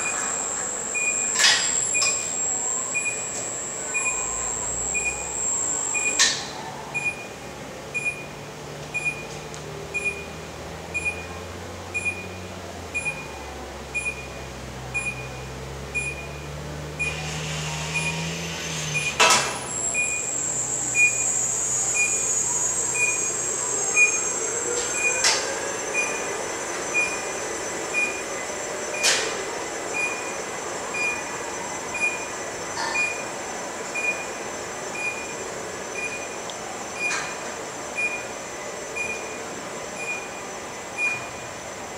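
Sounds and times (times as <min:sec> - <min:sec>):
high metallic whine: 0:00.0 - 0:06.6, 0:18.1 - 0:29.6
warning beeper: 0:00.0 - 0:07.3, 0:18.9 - 0:28.3
electric drive motors humming: 0:00.0 - 0:08.7, 0:09.4 - 0:41.9.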